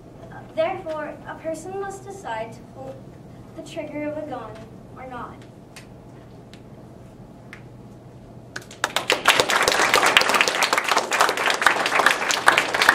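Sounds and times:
small audience clapping: 8.5 - 12.9.

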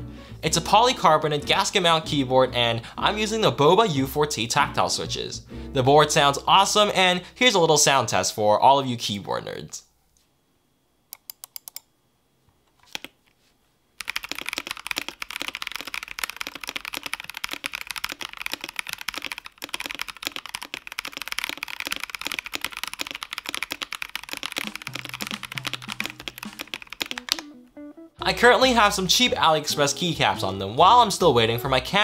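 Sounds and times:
mechanical keyboard typing: 11.2 - 11.9, 12.8 - 13.1, 14.0 - 27.6.

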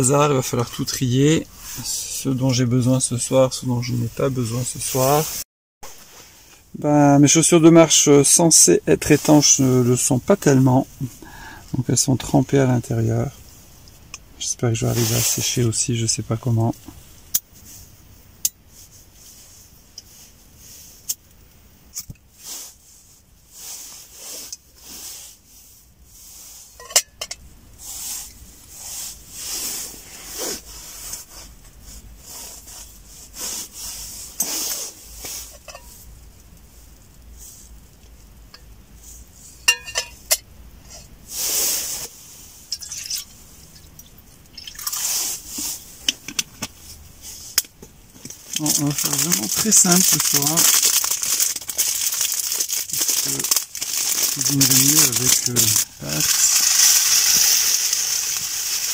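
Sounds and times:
water pouring from plastic bottle: 44.5 - 45.1, 48.4 - 58.9.

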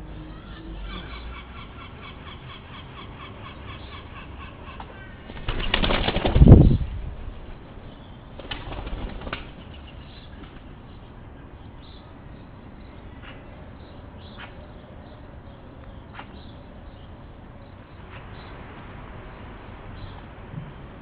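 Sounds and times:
faint bird calls: 0.0 - 6.0, 9.4 - 18.6
pigeon wings clattering: 4.8 - 6.7, 8.4 - 9.6.

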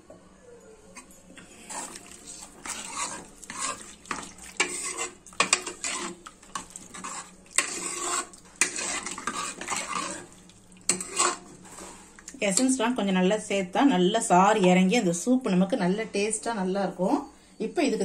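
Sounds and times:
ladle sloshing water in pot: 1.4 - 12.5
ladle clinking against pot: 2.6 - 10.2.

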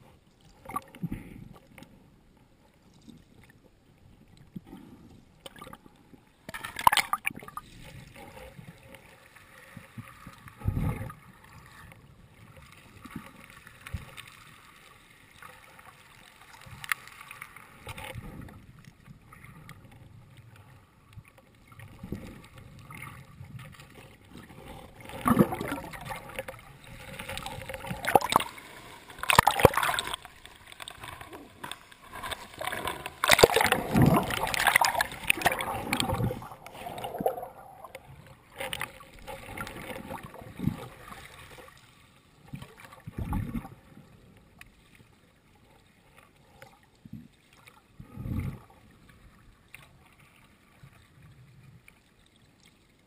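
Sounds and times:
water sloshing underwater: 0.0 - 53.0
water splash: 6.5 - 7.8, 25.0 - 41.8
churning splashes: 25.0 - 38.0.

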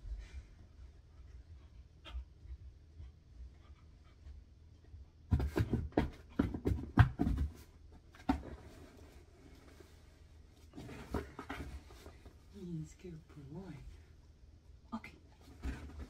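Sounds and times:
knock on cardboard box: 5.3 - 7.6.

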